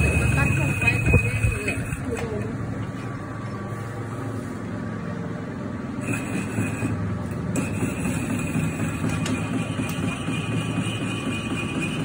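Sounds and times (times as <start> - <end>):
thin high whine: 0.0 - 2.5, 5.9 - 12.0
metal lathe humming: 0.0 - 12.0.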